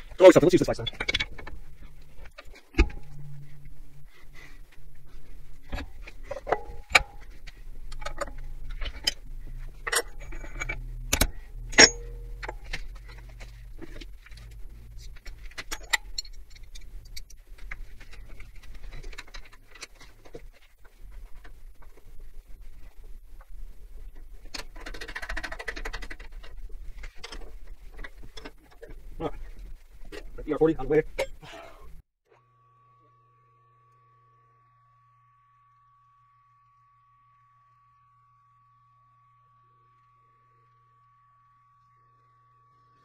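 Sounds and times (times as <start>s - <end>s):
milling machine motor hum: 4.7s - 17.2s.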